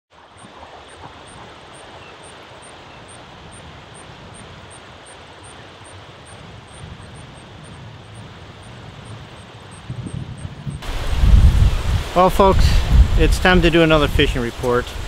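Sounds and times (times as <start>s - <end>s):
wind rumbling on microphone: 0.2s - 15.0s
river rushing over riffles: 10.8s - 15.0s.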